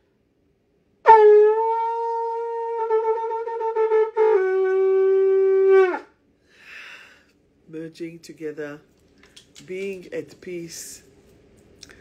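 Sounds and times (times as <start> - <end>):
horn blowing long note: 1.0 - 6.1.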